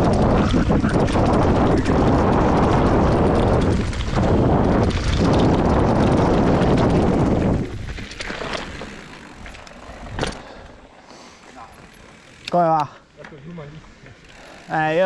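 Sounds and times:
wind buffeting microphone: 0:00.0 - 0:10.4
bike tyres rumbling over gravel: 0:00.0 - 0:13.0.

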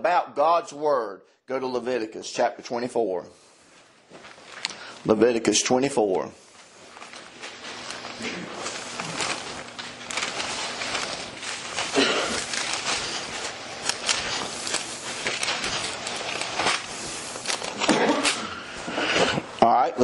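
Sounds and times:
thin pages rustling and flipping: 0:03.5 - 0:04.9, 0:06.0 - 0:19.5.

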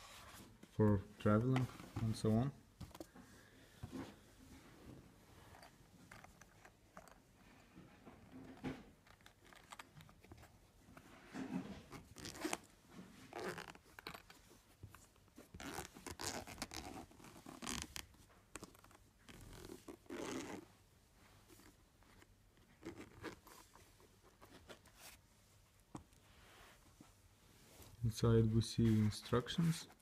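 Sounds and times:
zipper being drawn open: 0:12.2 - 0:12.7, 0:13.3 - 0:14.2, 0:15.6 - 0:18.0, 0:19.3 - 0:20.6, 0:22.8 - 0:23.5.

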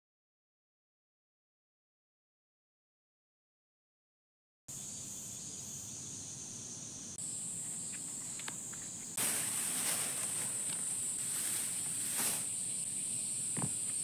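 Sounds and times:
cicadas droning: 0:04.7 - 0:14.0
faint ticks and rustles: 0:07.4 - 0:12.8.

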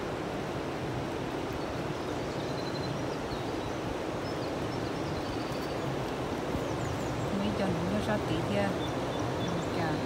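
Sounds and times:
river rushing over rocks: 0:00.0 - 0:10.0
faint bird chirps: 0:01.6 - 0:06.0, 0:08.6 - 0:10.0.

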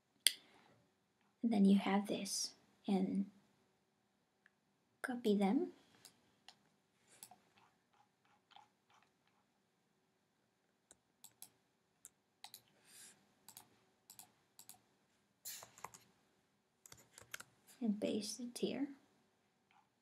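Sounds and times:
mouse and keyboard clicks: 0:07.2 - 0:09.4, 0:10.9 - 0:12.7, 0:13.5 - 0:14.8, 0:16.9 - 0:17.5.

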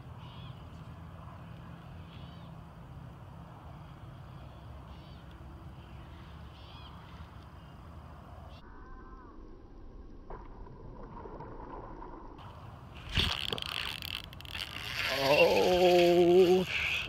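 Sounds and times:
birds chirping: 0:00.0 - 0:02.9, 0:03.6 - 0:08.6, 0:14.8 - 0:17.0.

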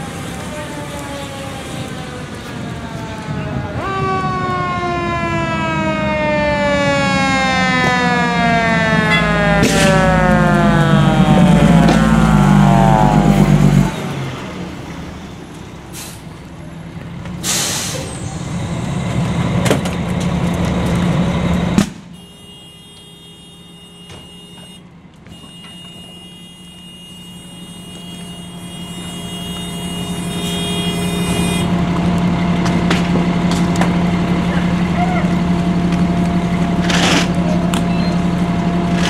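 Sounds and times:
diesel engine running: 0:04.8 - 0:39.0
air brakes hissing: 0:15.9 - 0:16.4, 0:17.4 - 0:18.5.

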